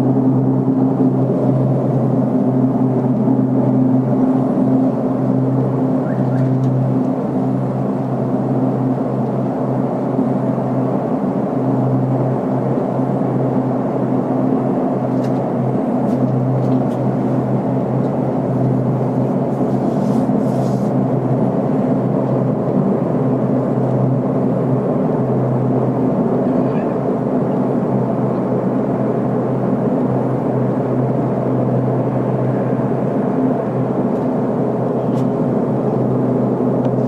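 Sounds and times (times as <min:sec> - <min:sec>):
low droning hum from the sky: 0:00.0 - 0:37.0.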